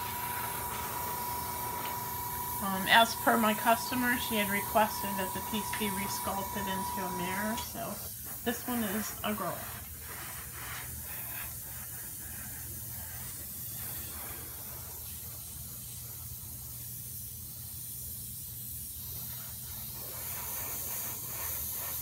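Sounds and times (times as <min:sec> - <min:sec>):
steady low hum: 0:00.0 - 0:10.4
airbrush hissing: 0:00.0 - 0:22.0.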